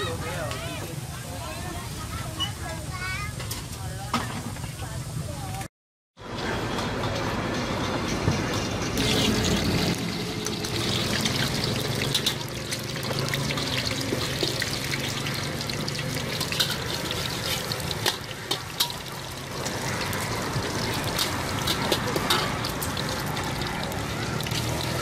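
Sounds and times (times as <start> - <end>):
ladle and spatula scraping wok: 8.7 - 25.0
egg sizzling in hot oil: 9.0 - 25.0.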